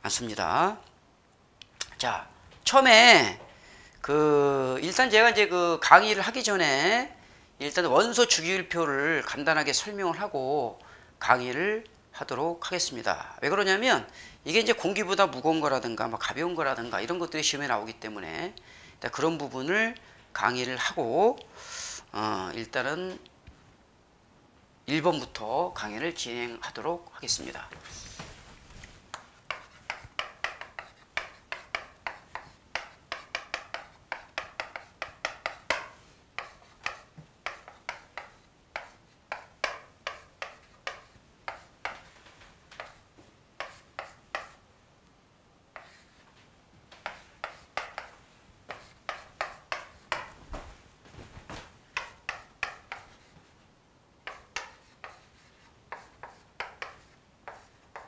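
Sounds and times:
chalk tapping and scraping: 27.2 - 44.7, 45.7 - 50.6, 51.4 - 53.6, 54.2 - 58.0.

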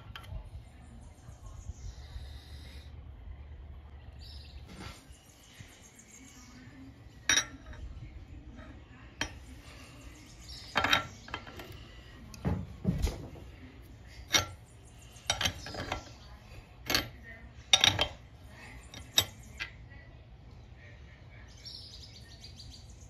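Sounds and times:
wrench clinking on metal fitting: 7.3 - 7.8.

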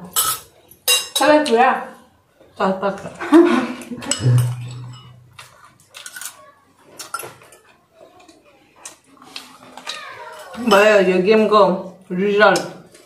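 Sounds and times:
metal spoon clinking ceramic bowl: 4.0 - 5.2.

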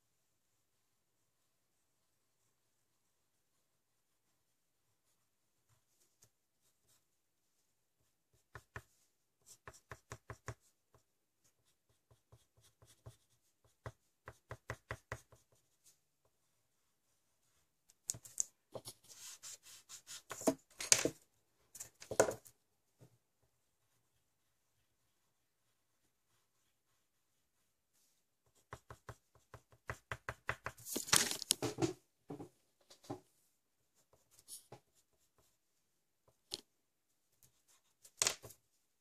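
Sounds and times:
pencil tapping and scratching on paper: 8.1 - 16.5, 17.9 - 23.6, 28.0 - 33.2, 34.0 - 36.7, 37.3 - 38.6
rubbing across paper: 18.8 - 20.6, 23.8 - 29.7.

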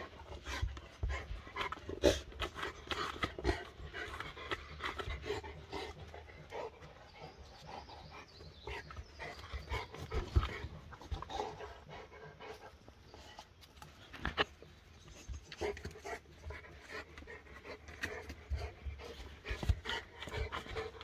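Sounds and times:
dog panting and sniffing: 0.0 - 21.0.

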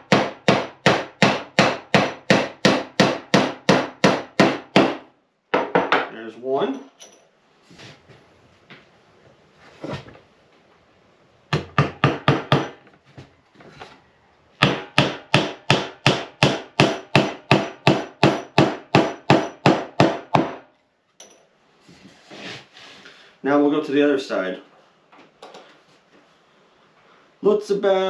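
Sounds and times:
hammer hitting nail into wood: 0.0 - 6.1, 11.5 - 12.8, 14.6 - 20.7.

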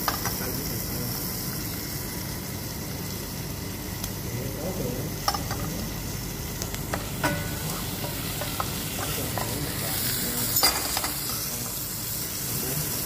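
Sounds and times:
vegetables sizzling in a pan: 0.0 - 13.0
utensil knocking against pan: 6.9 - 9.5.

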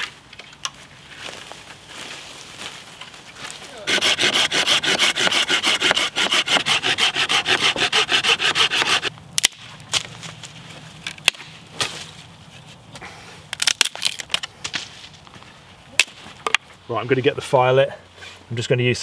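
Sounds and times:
saw rasping through branch: 3.7 - 9.1.

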